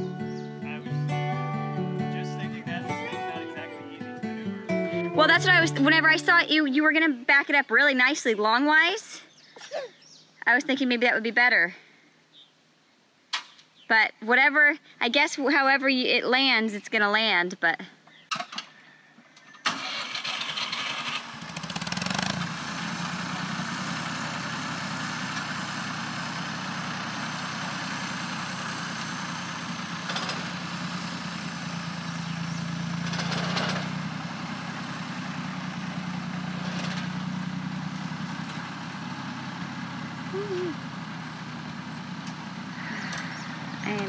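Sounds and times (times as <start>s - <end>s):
tractor engine running: 0.0s - 7.6s, 19.7s - 44.0s.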